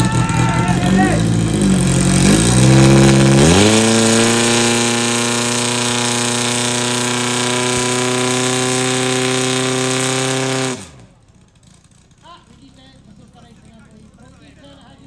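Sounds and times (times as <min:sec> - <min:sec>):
pump engine at full throttle: 0:00.0 - 0:11.4.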